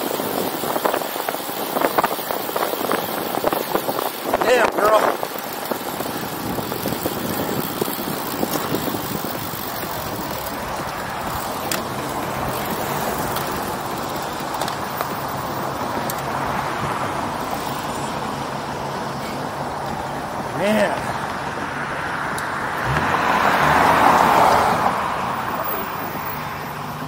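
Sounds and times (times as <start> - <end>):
wind rushing over microphone: 0.0 - 14.4
bicycle tyre hum on pavement: 0.0 - 27.0.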